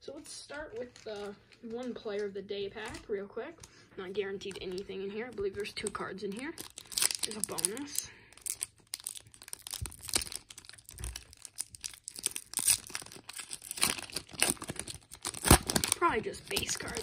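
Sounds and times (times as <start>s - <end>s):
foil wrapper crinkling and tearing: 4.4s - 17.0s.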